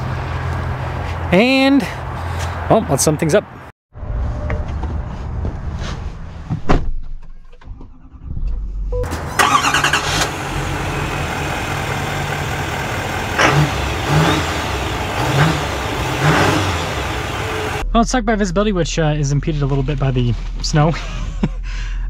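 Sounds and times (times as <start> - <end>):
diesel engine starting and idling: 7.6 - 17.8.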